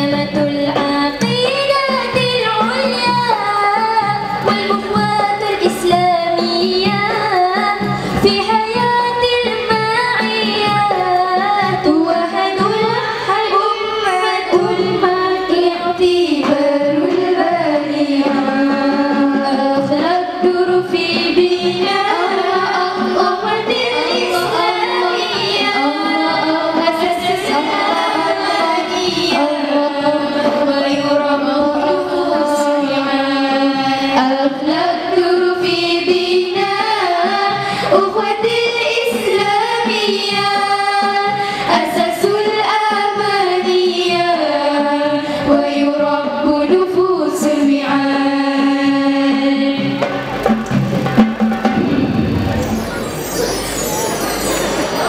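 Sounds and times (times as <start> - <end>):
hand drum: 0.0 - 33.2, 48.8 - 55.0
girls singing in unison: 0.0 - 50.1.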